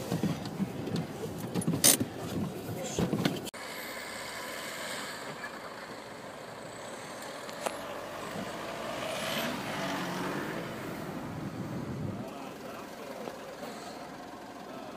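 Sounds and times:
chained tyres churning through snow: 3.7s - 11.6s
pickup truck engine running: 10.6s - 14.9s.

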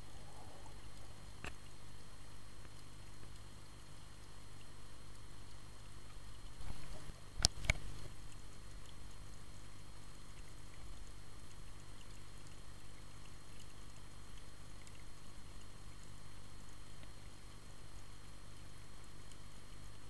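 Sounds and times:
faint high whine: 0.0s - 3.0s.

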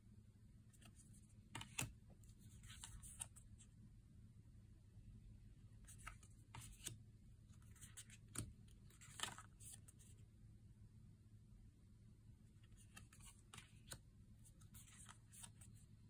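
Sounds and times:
cards sliding and tapping: 0.8s - 3.4s, 5.9s - 7.0s, 7.7s - 9.8s, 12.7s - 14.0s, 14.6s - 15.7s.

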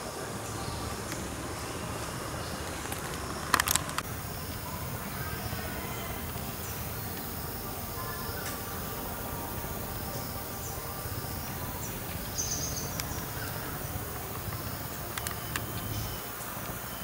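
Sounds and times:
insects humming: 0.0s - 17.0s
sharp clicks: 2.0s - 4.6s, 12.0s - 16.8s.

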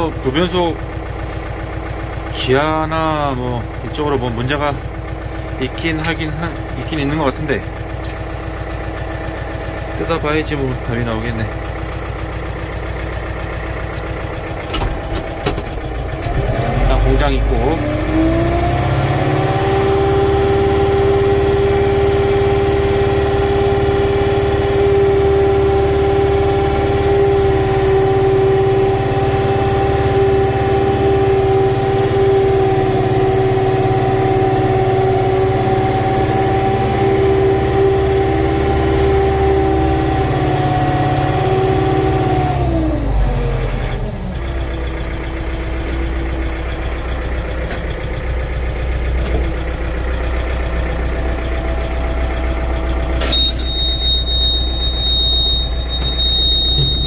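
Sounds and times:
tractor diesel engine running: 0.0s - 57.0s.

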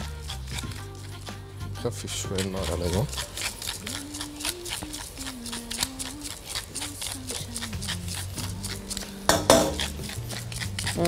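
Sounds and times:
pepper mill grinding: 0.0s - 11.0s.

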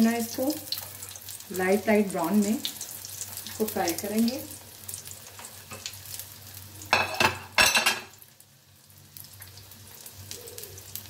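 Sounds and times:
patties sizzling in oil: 0.0s - 11.0s
metal utensil clattering on pan: 6.9s - 8.2s.

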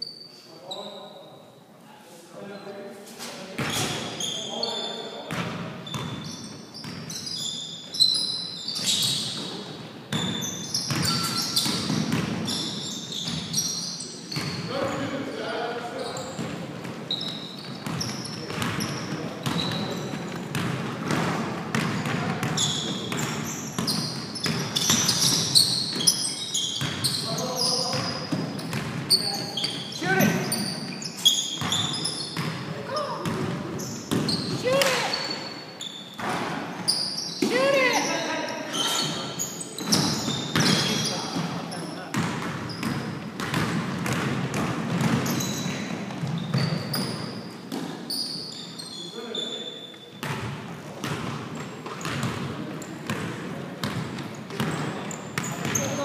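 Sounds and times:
sneaker squeaks: 0.0s - 1.6s, 2.4s - 56.0s
basketball dribbling: 10.2s - 12.6s, 16.4s - 27.2s, 27.9s - 29.0s, 42.1s - 47.1s, 50.2s - 52.5s.

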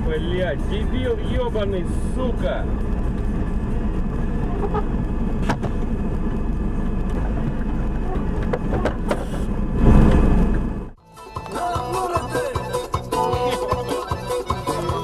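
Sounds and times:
vehicle engine and road rumble: 0.0s - 15.0s.

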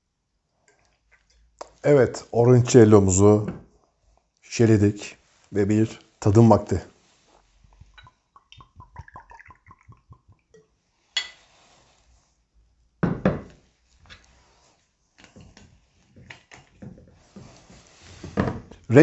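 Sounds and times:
liquid glugging into glass: 7.8s - 10.7s.

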